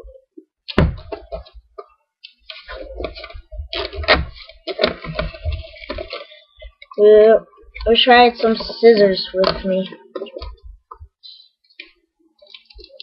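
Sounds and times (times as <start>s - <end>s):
plastic wrapping crinkling: 2.5s - 7.0s.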